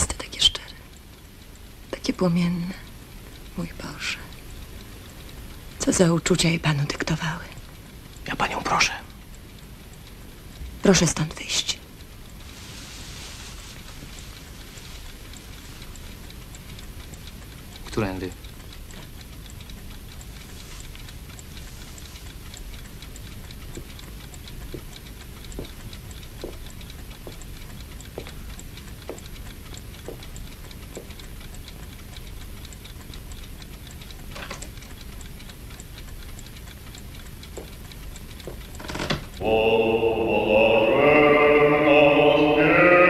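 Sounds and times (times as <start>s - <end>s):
clock ticking: 0.0s - 43.0s
slow footsteps: 12.4s - 16.0s, 24.7s - 29.3s, 30.0s - 31.2s, 37.4s - 39.1s.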